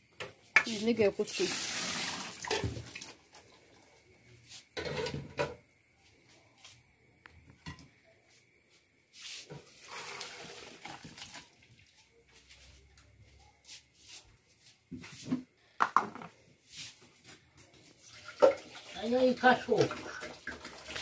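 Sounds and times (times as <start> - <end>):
pots and dishes clinking: 4.8 - 5.6.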